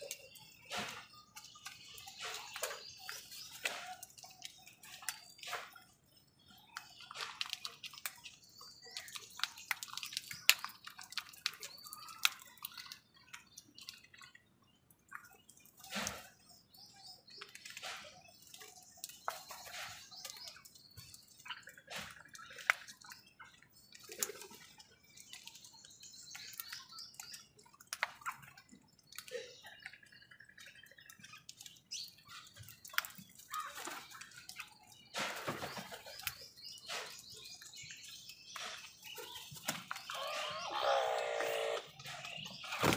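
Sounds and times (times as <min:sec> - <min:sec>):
crows pecking at bowl: 0:00.0 - 0:05.8, 0:06.8 - 0:14.4
bird chirps: 0:00.0 - 0:42.9.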